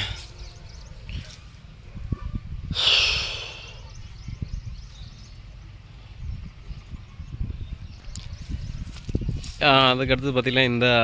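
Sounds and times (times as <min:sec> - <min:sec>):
sharp hissing breath or sniff: 0:02.7 - 0:03.9.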